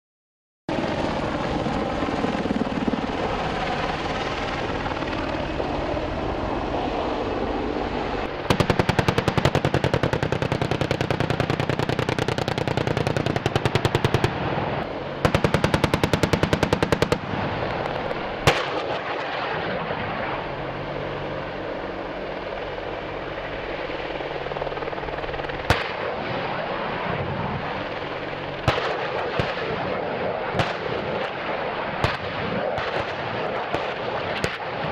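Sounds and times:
helicopter rotor noise: 0.7 - 34.9
sharp bangs: 8.4 - 19.6
rapid gunfire bursts: 8.5 - 14.4, 15.2 - 17.3.

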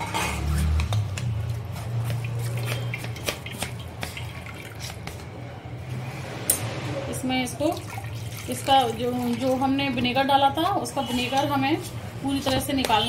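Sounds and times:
water splashing and dripping: 2.0 - 5.2, 7.6 - 10.2.

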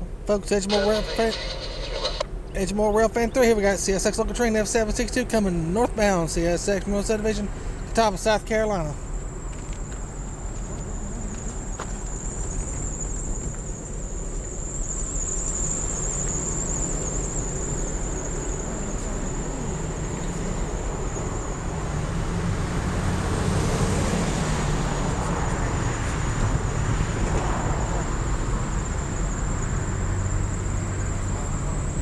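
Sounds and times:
distant diesel locomotive engine drone: 0.0 - 32.0
steady outdoor hiss: 0.0 - 32.0
thin high-pitched whine: 0.4 - 3.5.

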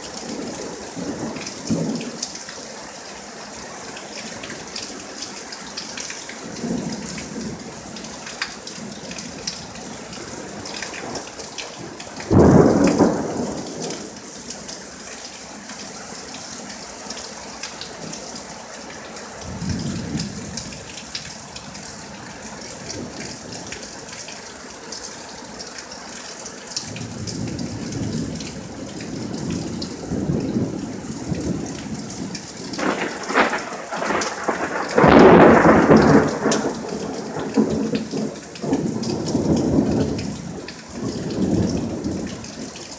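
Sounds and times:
steady rain falling: 0.0 - 42.9
thunder rumbling: 12.2 - 14.1, 26.9 - 42.4
loud thunderclap: 12.3 - 14.0, 32.8 - 40.1.

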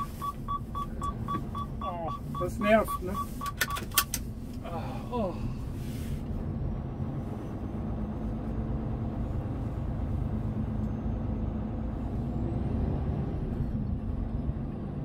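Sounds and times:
diesel truck engine rumbling: 0.0 - 15.0.

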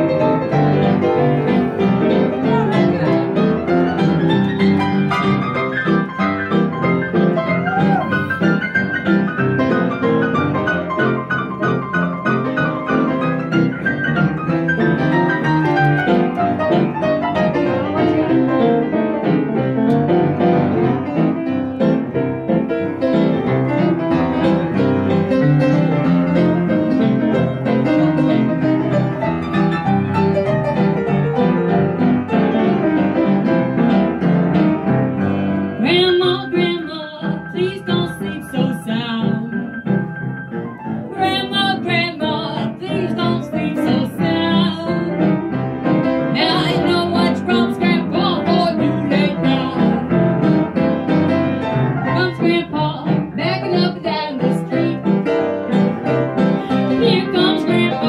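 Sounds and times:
upright piano playing: 0.0 - 58.0
woman singing into a microphone: 35.8 - 39.6, 41.1 - 45.2, 46.4 - 50.0, 52.1 - 55.1, 57.0 - 58.0.

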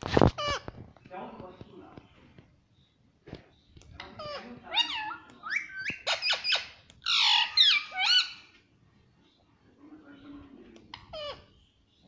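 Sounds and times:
parakeet squawking and chirping: 0.1 - 0.8, 3.9 - 8.6, 10.9 - 12.0.

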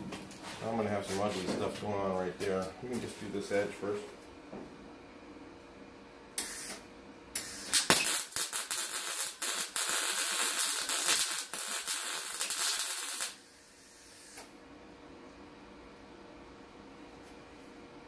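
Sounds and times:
welder arc crackling: 6.4 - 13.5.

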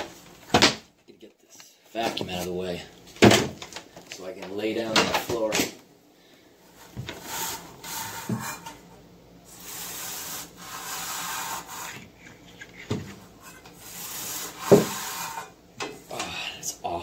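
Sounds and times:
brush scrubbing metal coil: 9.5 - 12.4, 13.4 - 15.5.

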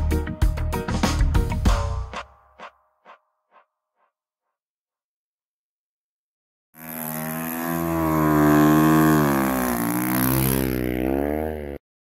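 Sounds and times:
snow bike engine revving: 6.8 - 11.8.

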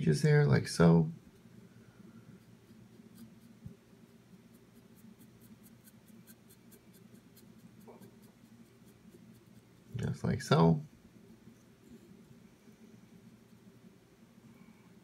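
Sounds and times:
steady low hum: 0.0 - 15.0
paintbrush strokes: 2.2 - 13.8.

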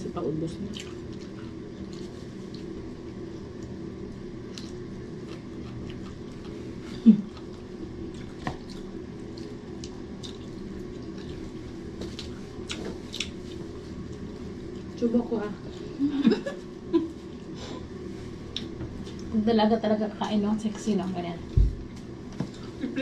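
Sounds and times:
steady low hum: 0.0 - 23.0
chewing and lip smacks: 0.7 - 3.8, 4.4 - 15.0.

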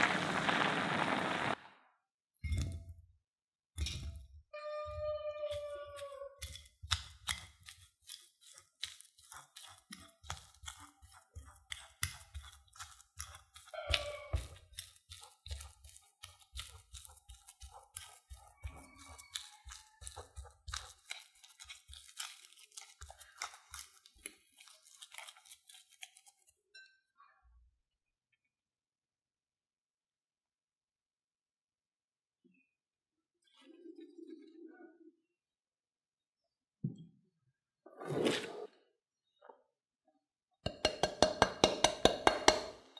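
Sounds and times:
fork scraping ceramic bowl: 5.5 - 26.5
potato squishing: 5.6 - 26.6.

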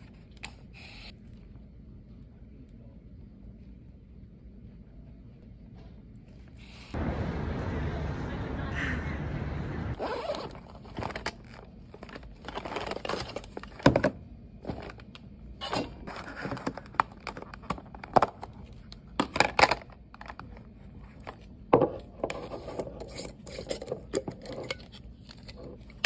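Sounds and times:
bag zipper opening: 10.0 - 10.8.

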